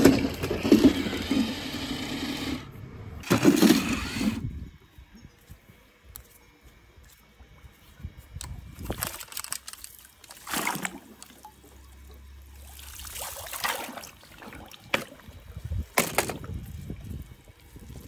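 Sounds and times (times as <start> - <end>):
skimmer net swishing through water: 9.9 - 15.6.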